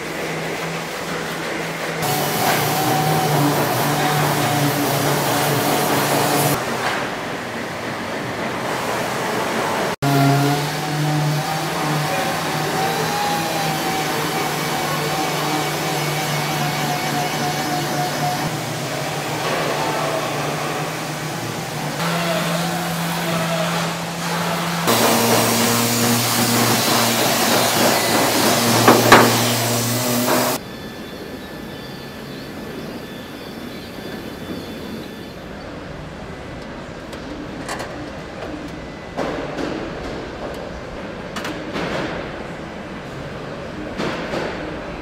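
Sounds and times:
sander on metal panel: 0.0 - 6.6, 8.6 - 30.6.

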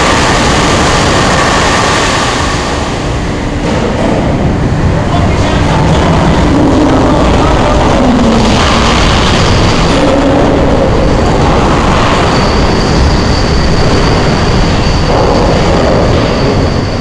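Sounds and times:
machinery rumbling: 0.0 - 17.0
thin high squeal: 9.2 - 17.0.

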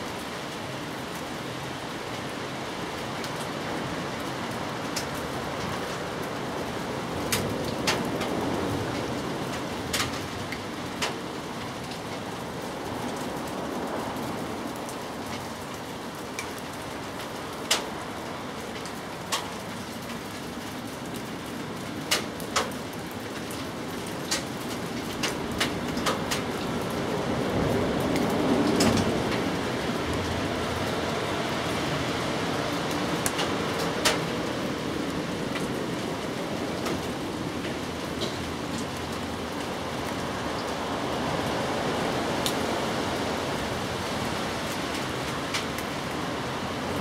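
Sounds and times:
steady rain falling: 0.0 - 47.0.

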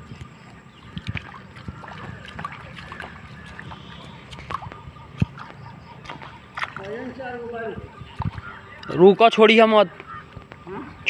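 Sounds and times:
shallow water sloshing and splashing: 0.2 - 8.8.

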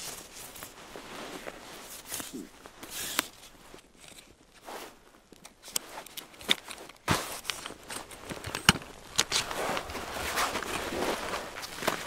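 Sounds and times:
footsteps crunching on snow: 0.0 - 6.1, 9.3 - 12.0
gear rustling and clicking: 1.4 - 12.0.

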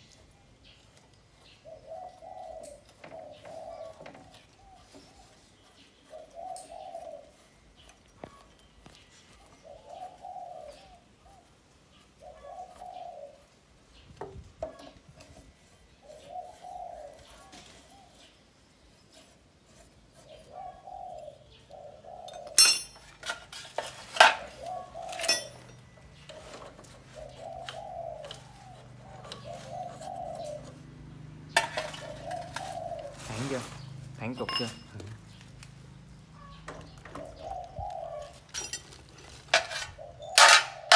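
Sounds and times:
bird cooing: 1.4 - 18.4, 20.2 - 23.0, 23.9 - 40.9
wrench clanking on metal bolts: 22.5 - 23.5, 25.1 - 26.4, 39.6 - 40.8.

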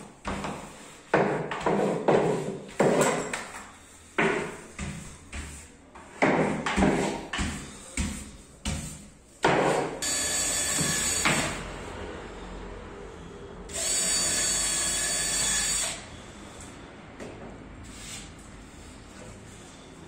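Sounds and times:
cordless drill drilling into board: 10.0 - 11.5, 13.7 - 16.0.

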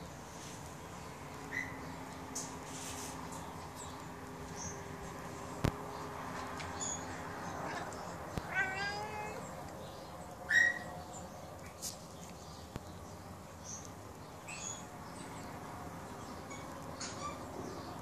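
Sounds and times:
cat meowing: 7.6 - 9.4.

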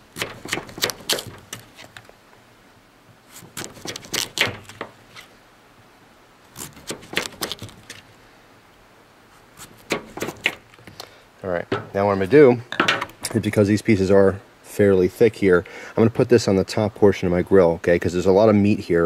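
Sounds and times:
knife slicing vegetable: 0.1 - 2.0, 3.3 - 5.3, 6.5 - 8.0, 9.6 - 10.6.

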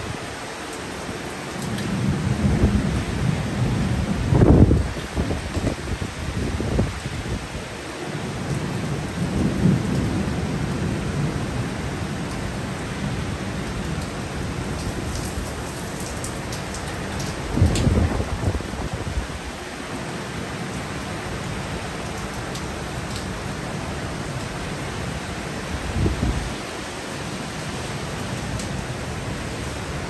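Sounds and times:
heavy rain falling: 0.0 - 30.0
raindrop ticks: 13.9 - 18.0, 22.0 - 23.3
thunder rumbling: 17.4 - 19.2.

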